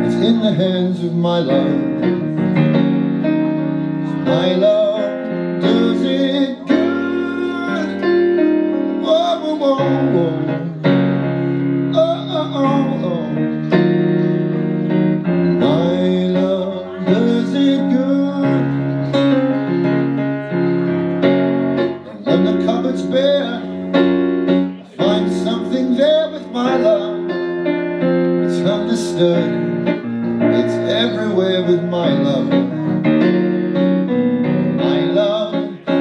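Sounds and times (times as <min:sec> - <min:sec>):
electronic keyboard chords: 0:00.0 - 0:36.0.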